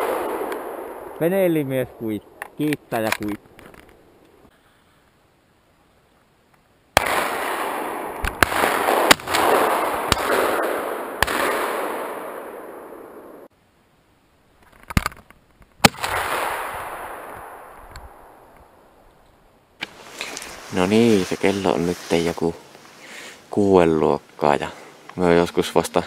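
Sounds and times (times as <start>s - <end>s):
shotgun shots with echo: 7.0s - 13.4s.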